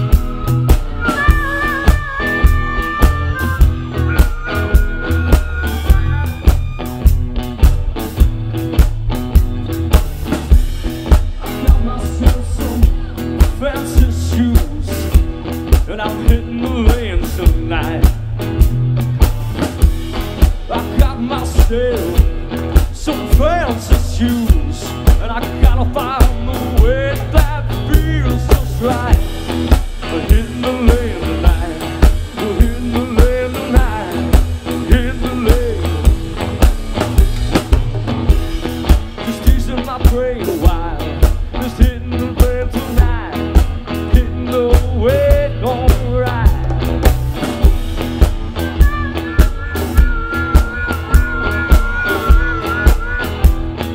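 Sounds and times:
man singing into a microphone: 0.0s - 6.8s, 11.4s - 18.3s, 20.6s - 29.4s, 30.0s - 36.2s, 39.1s - 47.0s, 48.6s - 53.5s
bass guitar: 0.0s - 53.9s
drum kit beat: 0.0s - 53.9s
electric guitar: 0.0s - 53.9s.

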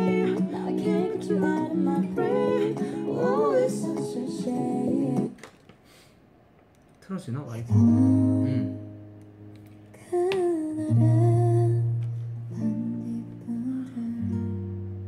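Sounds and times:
person singing slow melody: 0.0s - 5.4s, 7.7s - 9.1s, 10.0s - 15.0s
plucked acoustic guitar: 0.0s - 5.4s, 7.6s - 15.0s.

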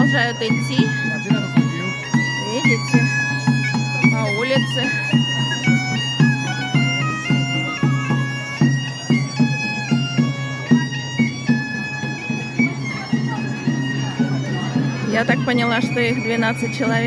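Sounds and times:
hand drum tapping a beat: 0.0s - 12.0s
bagpipe playing a tune: 0.0s - 17.0s.

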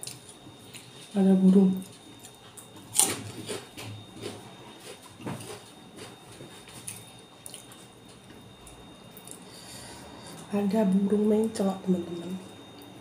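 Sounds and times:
chewing and mouth sounds: 0.0s - 9.5s.

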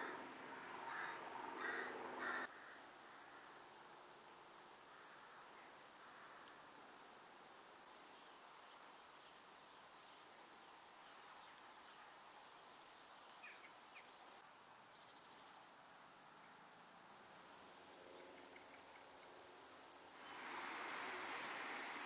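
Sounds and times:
distant traffic rushing: 0.0s - 2.5s, 19.4s - 22.0s
small birds chirping: 7.8s - 22.0s.

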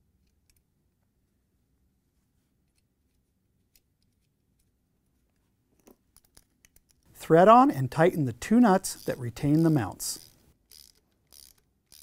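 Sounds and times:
faint clicks of parts handled: 0.2s - 1.2s, 2.4s - 7.1s.

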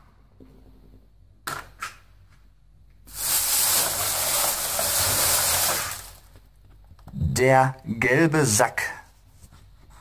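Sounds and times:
plastic bag rustling: 3.1s - 6.4s.

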